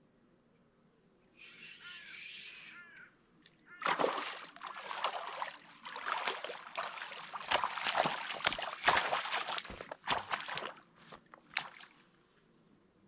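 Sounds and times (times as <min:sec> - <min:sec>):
fish thrashing and splashing: 0:03.8 - 0:11.9.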